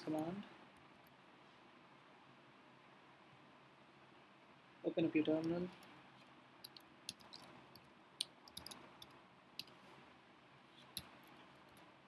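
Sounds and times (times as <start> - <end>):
laptop keys and trackpad clicking: 6.6 - 9.8.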